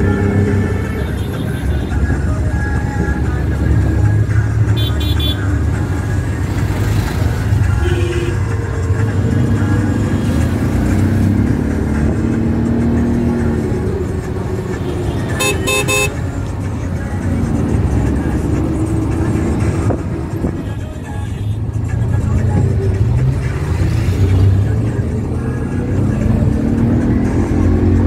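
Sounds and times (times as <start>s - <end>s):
traffic engines rumbling: 0.0s - 28.0s
vehicle horn toots: 4.8s - 5.5s, 14.9s - 16.2s.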